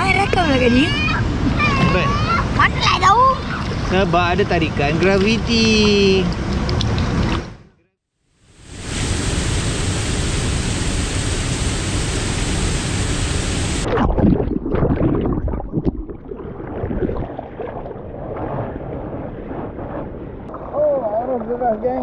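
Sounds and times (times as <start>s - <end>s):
underwater gurgling and bubbling: 13.7s - 20.8s.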